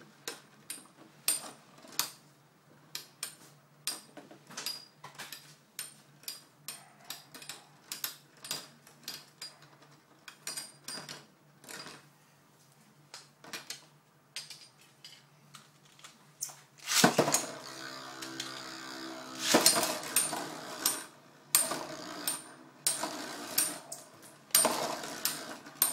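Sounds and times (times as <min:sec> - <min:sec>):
ripcord launcher launch: 0:16.8 - 0:17.5, 0:19.4 - 0:20.0
spinning tops clashing metallically: 0:16.8 - 0:25.9
spinning tops whirring: 0:16.8 - 0:25.9.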